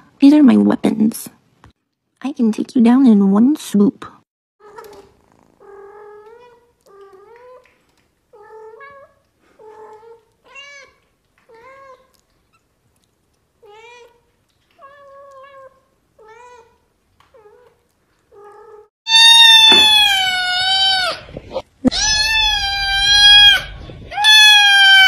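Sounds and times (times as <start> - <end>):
kittens mewing: 18.4 - 25.0
kitten loud long meow: 19.1 - 21.2, 21.9 - 25.0.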